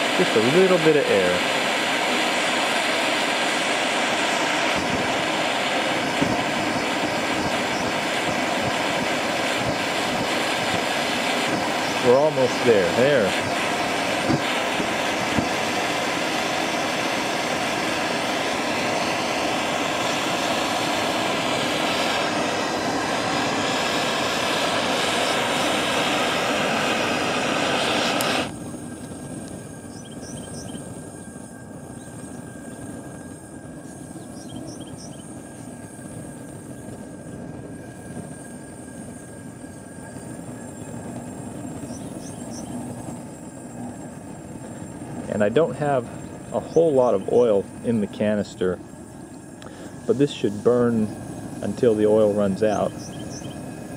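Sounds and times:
burner flames rushing: 0.0 - 53.9.

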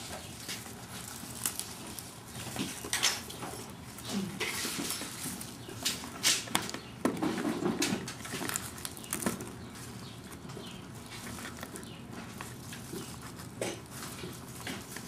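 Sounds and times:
rustling leaves: 0.0 - 6.5.

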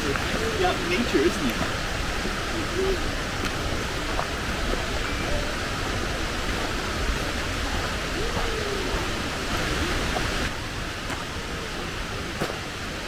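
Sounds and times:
waterfall rushing: 0.0 - 13.0.

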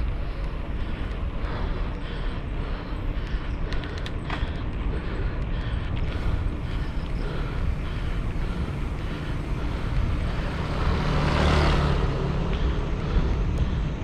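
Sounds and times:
wind and road noise: 0.0 - 14.0
motor vehicle passing: 6.0 - 14.0.

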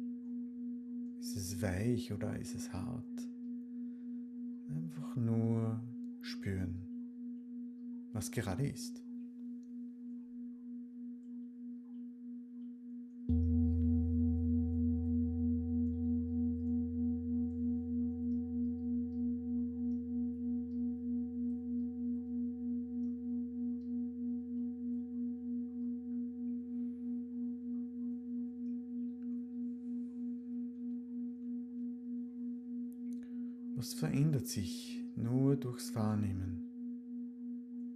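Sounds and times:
singing bowl ringing: 13.3 - 33.8.

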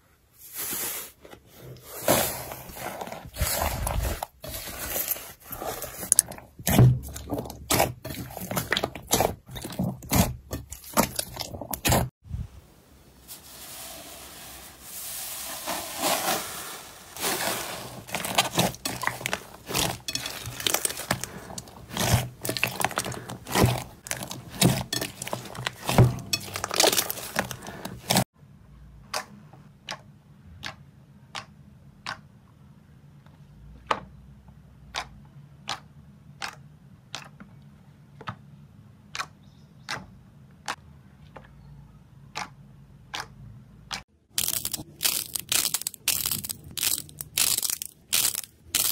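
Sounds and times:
slime squishing and crackling: 2.7 - 12.1, 17.2 - 28.3, 44.3 - 48.9.

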